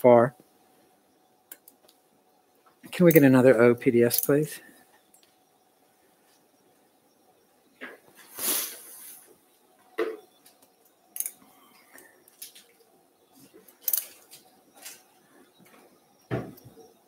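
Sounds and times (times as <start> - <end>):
metal instruments clicking: 4.1 - 4.4, 11.2 - 11.4, 13.8 - 14.2.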